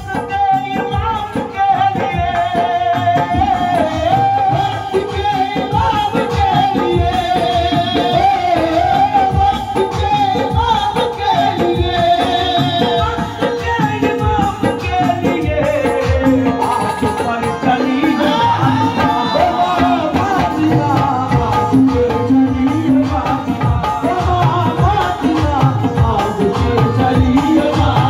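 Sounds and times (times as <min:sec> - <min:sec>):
harmonium: 0:00.0 - 0:28.0
man singing into microphone: 0:00.0 - 0:28.0.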